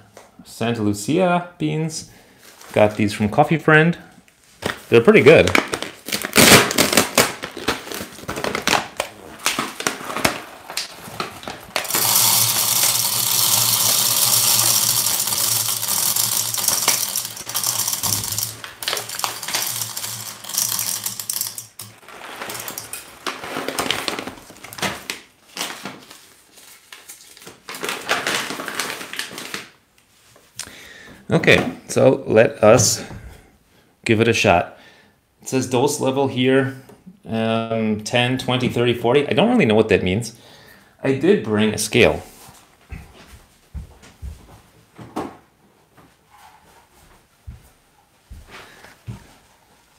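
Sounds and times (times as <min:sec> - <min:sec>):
bag rustling: 0:05.2 - 0:26.9
coffee beans rattling into hopper: 0:11.1 - 0:25.2.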